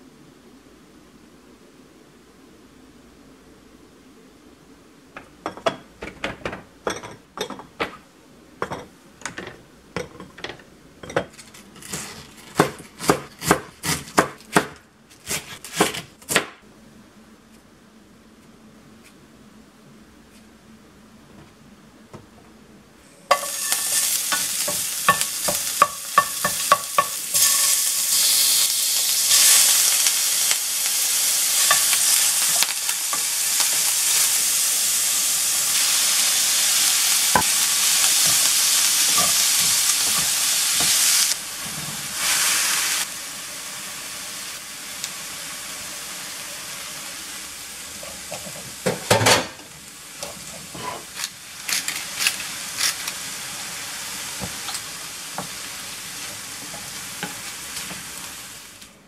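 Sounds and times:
vegetables sizzling in a frying pan: 23.1 - 59.0
utensil scraping a pan: 23.3 - 28.2, 38.2 - 42.4, 50.2 - 53.0.

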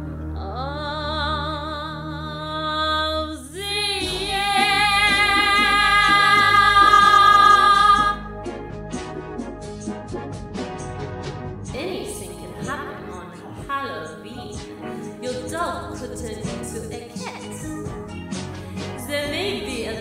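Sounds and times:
woman singing with vibrato: 0.4 - 8.3
backing music: 3.6 - 20.0.

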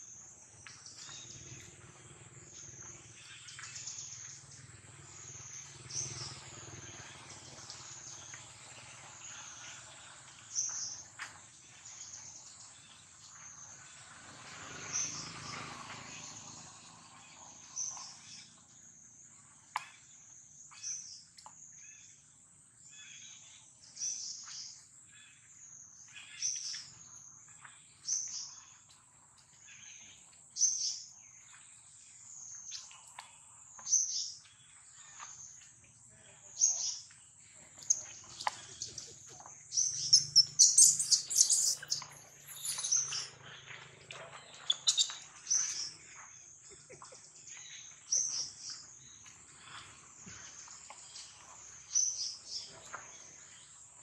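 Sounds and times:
baby monkey squealing: 40.0 - 43.3, 44.7 - 45.2
monkeys screeching: 40.0 - 43.3, 44.7 - 45.2.

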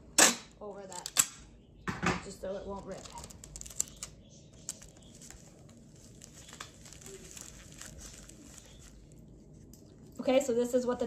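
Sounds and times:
plastic crinkling: 2.3 - 10.2.

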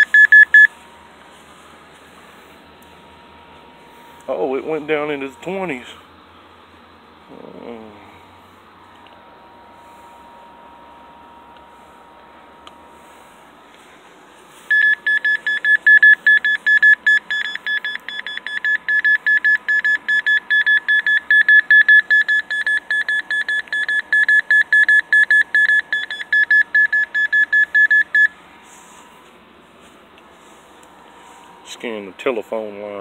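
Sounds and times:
rapid electronic beeping: 0.0 - 0.7, 14.7 - 28.3.

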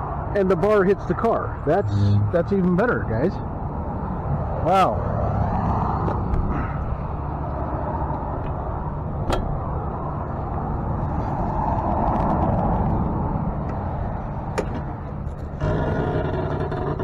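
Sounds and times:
tow truck mechanical drone: 0.0 - 17.0.

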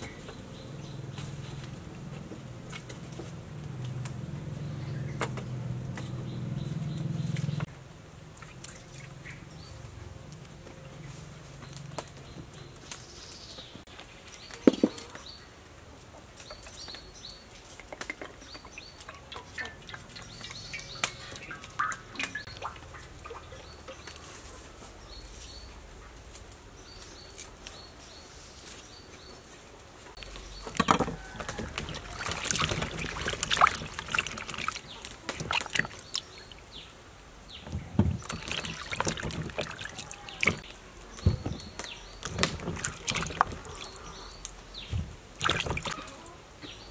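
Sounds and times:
water splashing in basin: 18.8 - 24.2, 30.5 - 36.7, 37.9 - 40.8, 42.2 - 44.2, 45.3 - 46.2.

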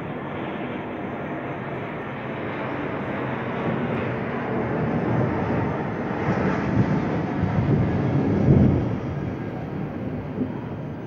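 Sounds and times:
airplane engine rumble: 0.0 - 11.0.

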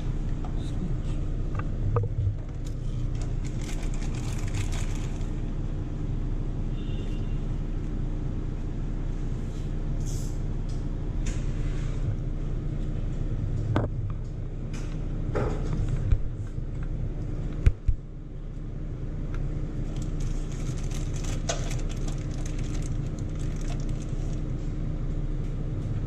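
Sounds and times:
low machine hum: 0.0 - 26.0
plastic tubes clicking and rustling: 19.9 - 24.5.

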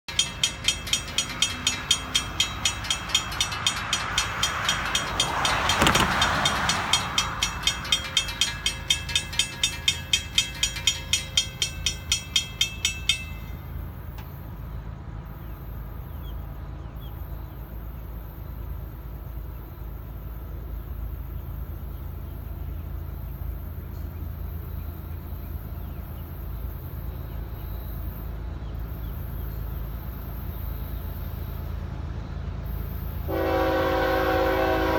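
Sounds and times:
crossing bell ringing: 0.1 - 14.2.

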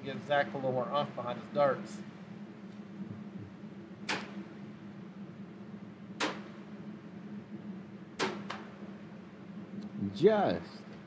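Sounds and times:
steady low hum: 0.0 - 11.0
darts hitting dartboard: 4.1 - 4.4, 6.2 - 6.5, 8.2 - 8.7.

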